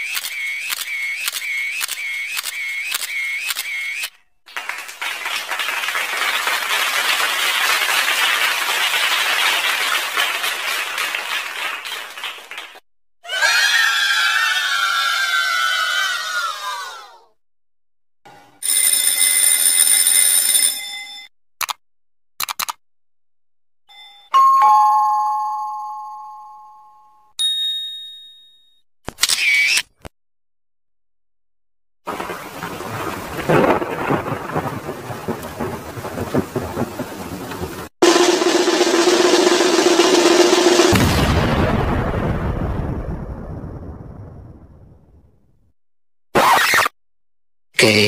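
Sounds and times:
audience applause: 4.5s - 12.8s
bright high-pitched ding: 23.9s - 28.8s
two-note ding-dong chime: 23.9s - 28.8s.

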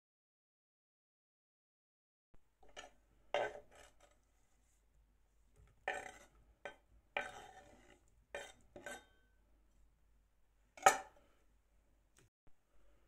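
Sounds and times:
knife scraping on cutting board: 2.6s - 4.2s, 5.8s - 9.2s.

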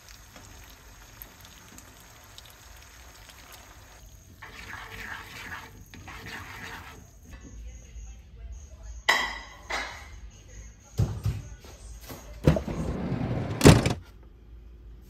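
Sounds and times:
scraping in a frying pan: 4.3s - 7.4s.

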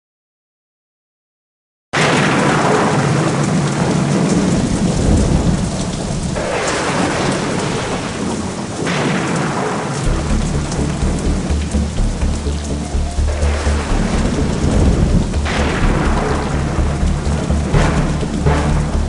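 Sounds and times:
heavy rain: 2.0s - 19.0s
thunder: 2.0s - 19.0s
deep pulsing rumble: 10.0s - 19.0s.

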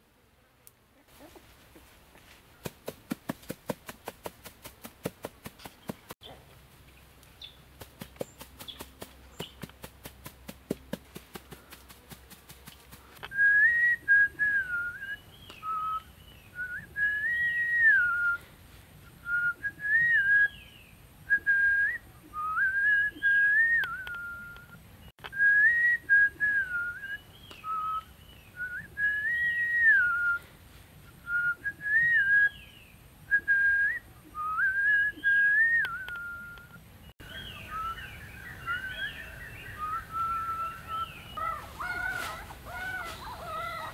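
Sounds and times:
bird chirping: 5.5s - 9.8s, 35.0s - 43.9s
whistled tune: 33.3s - 36.7s.

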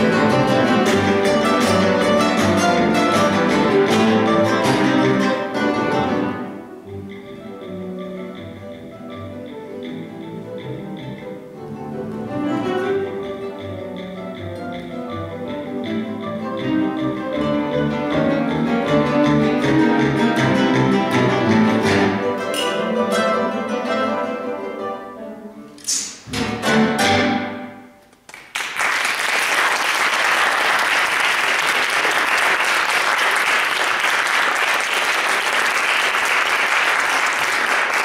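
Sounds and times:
guitar orchestra playing: 0.0s - 28.2s
audience applause: 28.3s - 38.0s.

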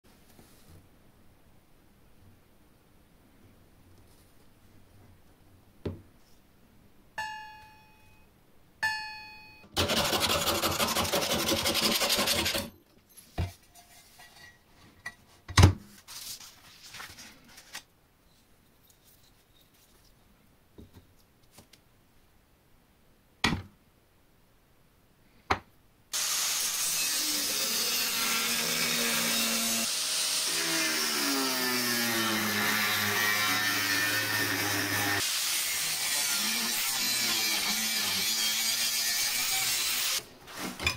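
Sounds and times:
angle grinder cutting metal: 9.8s - 12.7s, 26.2s - 40.2s.

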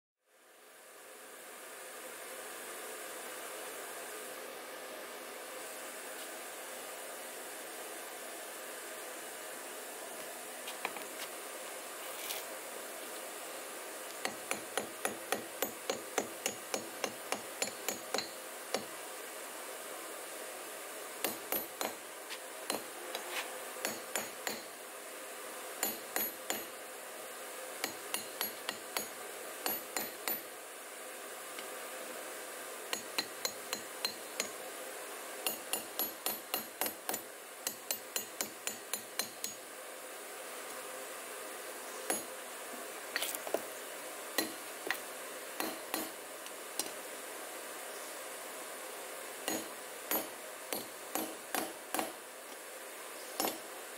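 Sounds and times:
hammer striking steel rod: 14.2s - 18.9s, 21.2s - 22.0s, 23.8s - 24.7s, 25.8s - 26.7s, 27.8s - 30.5s, 35.4s - 39.6s, 42.1s - 42.3s, 45.6s - 46.2s, 49.5s - 52.2s, 53.4s - 53.6s.

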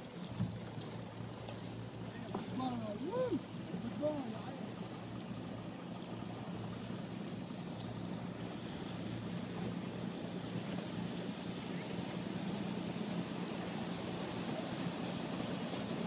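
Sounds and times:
faint steady drone: 0.0s - 16.0s
rush of water and wind: 0.0s - 16.0s.

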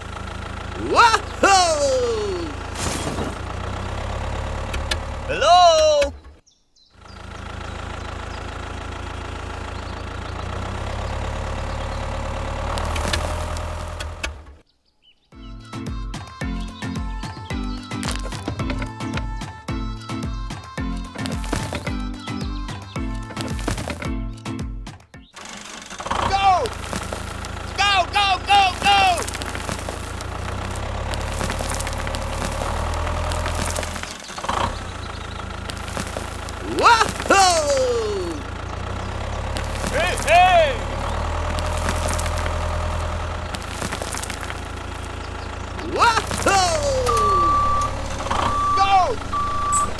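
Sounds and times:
engine idling: 0.0s - 14.7s, 17.1s - 24.6s, 25.3s - 49.9s.

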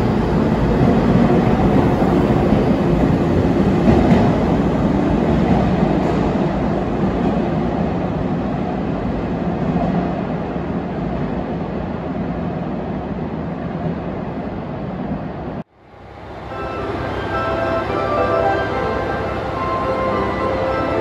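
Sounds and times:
electric train rumbling: 0.0s - 21.0s.

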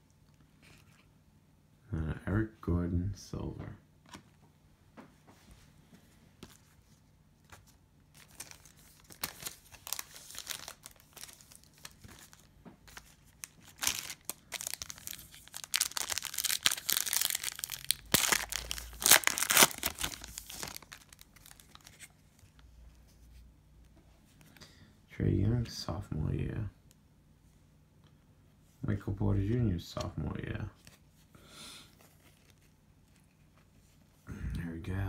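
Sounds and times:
cellophane wrapper crinkling: 7.5s - 22.6s.

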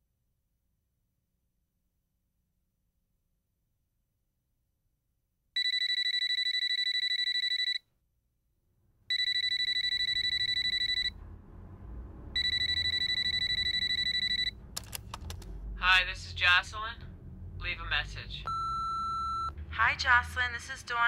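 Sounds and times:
electronic telephone ringing: 5.6s - 7.8s, 9.1s - 11.2s, 12.4s - 14.6s, 18.5s - 19.5s
low room rumble: 8.7s - 21.0s.

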